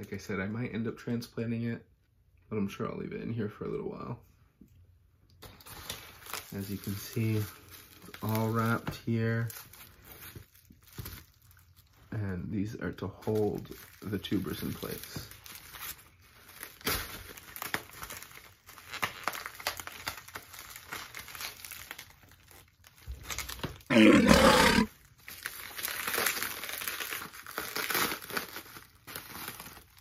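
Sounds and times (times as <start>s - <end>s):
bubble wrap crinkling: 5.4s - 12.2s, 12.9s - 30.0s.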